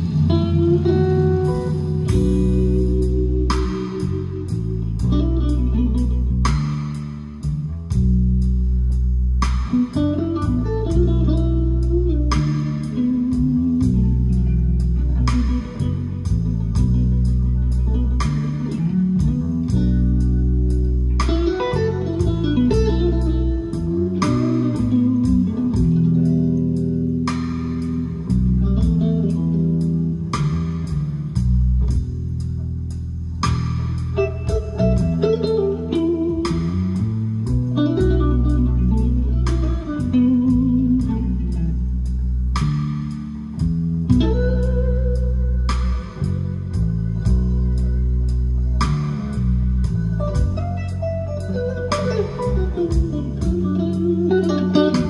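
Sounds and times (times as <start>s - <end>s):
music with guitar and bass: 0.0s - 55.0s.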